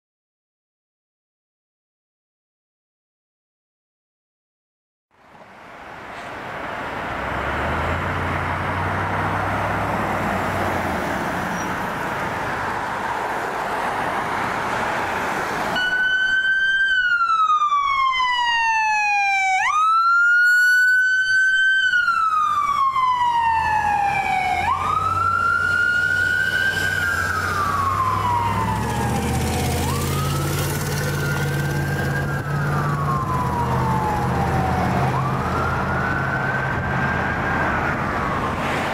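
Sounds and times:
traffic noise: 5.1s - 38.9s
fire engine siren wailing: 6.8s - 38.9s
second siren: 15.8s - 38.9s.

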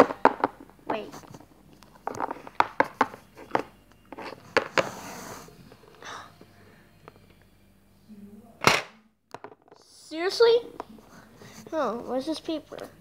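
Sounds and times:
plastic figurines tapping on table: 0.0s - 1.0s, 2.0s - 3.7s, 8.6s - 9.8s.

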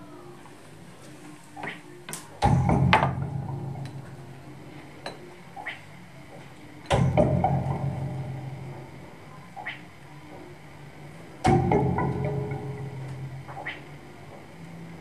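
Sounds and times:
clanking electronic percussion hits: 2.4s - 4.6s, 6.9s - 9.8s, 11.4s - 14.1s.

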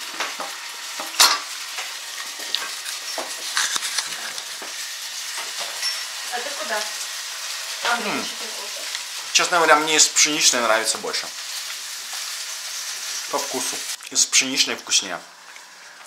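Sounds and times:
oil sizzling in a frying pan: 0.0s - 16.0s
metal clinks: 5.8s - 6.2s.

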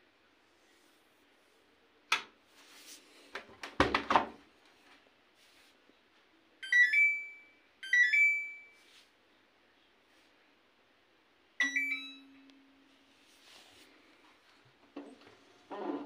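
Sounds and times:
door knocks and thuds: 3.8s - 4.4s.

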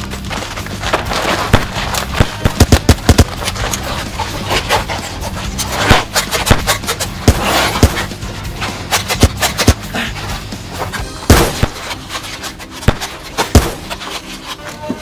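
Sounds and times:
background music: 0.0s - 15.0s
foam blaster shots: 1.0s - 3.6s, 5.7s - 8.2s, 11.2s - 12.0s, 12.8s - 14.0s.

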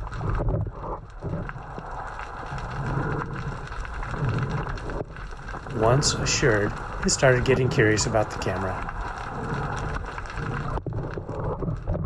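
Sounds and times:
faint clicks and crackles: 0.0s - 12.0s
underwater water noise: 0.0s - 12.0s
low muffled sounds: 5.5s - 10.7s.

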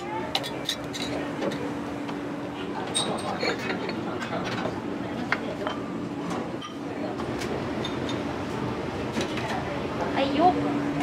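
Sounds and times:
steady low hum: 0.0s - 11.0s
dishes and utensils clinking: 0.3s - 1.7s, 2.8s - 5.9s, 6.6s - 6.9s, 7.8s - 8.3s.

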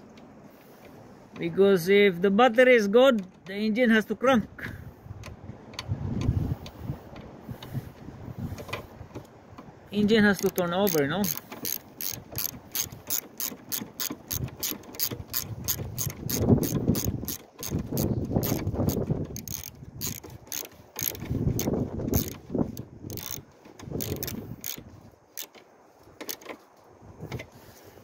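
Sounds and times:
starter solenoid clicking rapidly: 10.4s - 24.8s.

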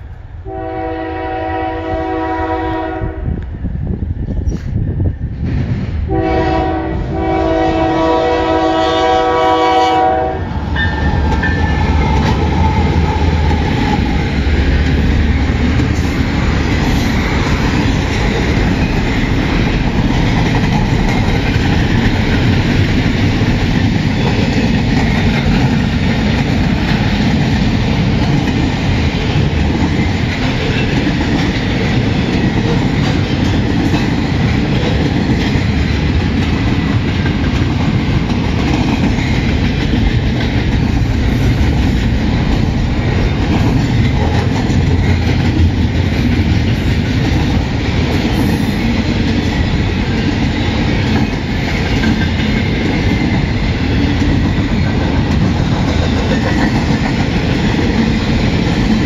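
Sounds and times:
train cars rolling on rails: 0.0s - 59.0s
train horn chord: 0.4s - 3.3s, 6.1s - 11.0s.

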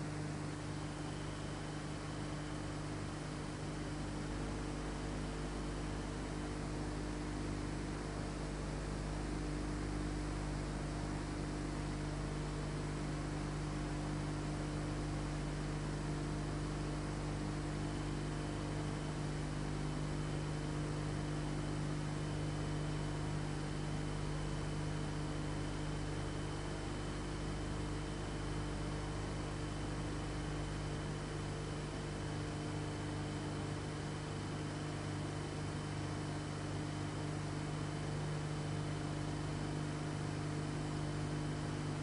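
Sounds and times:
electrical hum: 0.0s - 19.1s.

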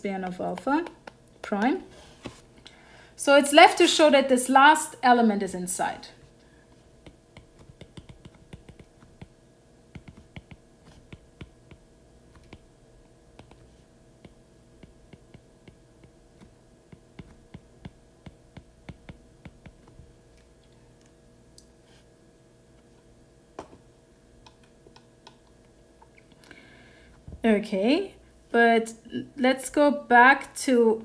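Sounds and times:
faint steady hum: 0.0s - 31.0s.

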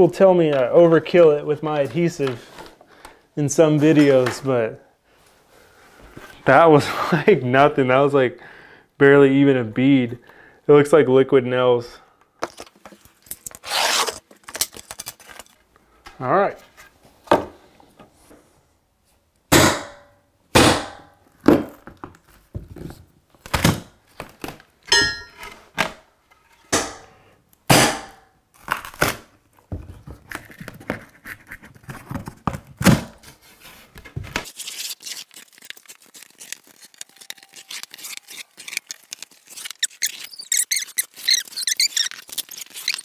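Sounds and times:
brief squeak: 39.6s - 43.0s.

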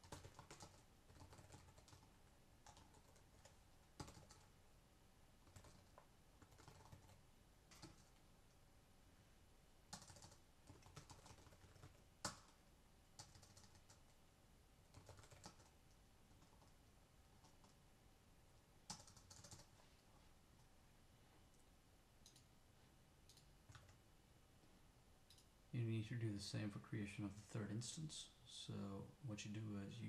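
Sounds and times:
faint keyboard typing: 0.0s - 4.6s, 5.4s - 8.6s, 9.9s - 14.2s, 14.8s - 17.9s, 18.8s - 20.8s, 21.4s - 22.6s, 23.2s - 25.6s.

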